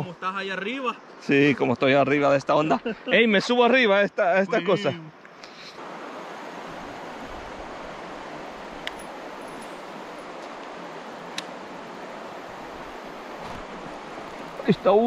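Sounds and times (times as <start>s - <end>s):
river water rushing: 5.7s - 15.0s.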